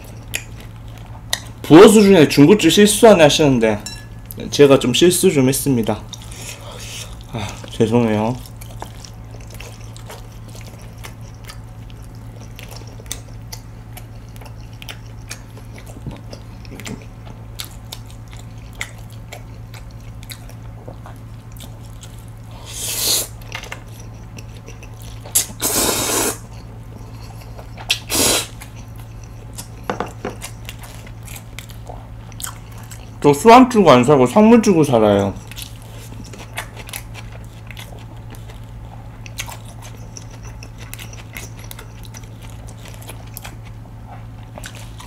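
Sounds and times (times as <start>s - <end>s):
wet chewing with clicks: 0.0s - 1.7s, 5.9s - 22.5s, 23.3s - 25.6s, 26.4s - 33.3s, 34.7s - 45.0s
slurping noodles: 22.6s - 23.4s, 25.3s - 26.6s, 27.9s - 28.7s.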